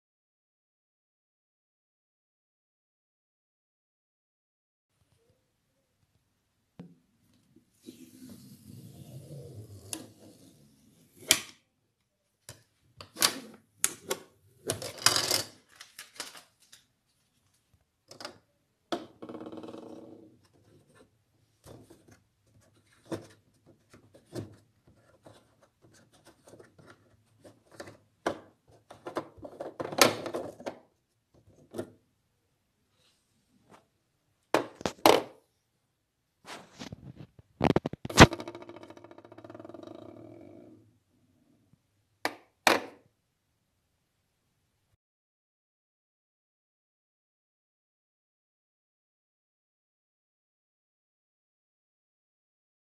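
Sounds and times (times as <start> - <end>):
plastic parts clicking and rubbing: 12.4 - 16.9, 36.7 - 38.5
plastic cap scraping: 36.5 - 38.8.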